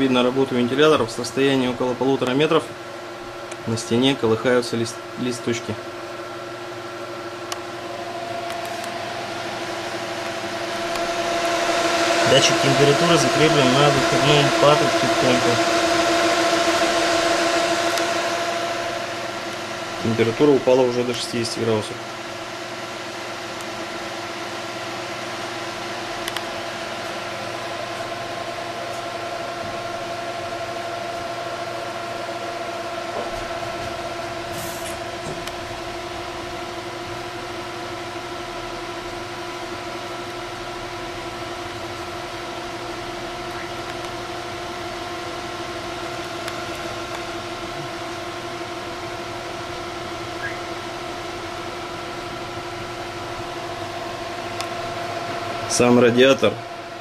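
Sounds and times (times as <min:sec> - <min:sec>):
fans rushing air with whine: 0:00.0 - 0:57.0.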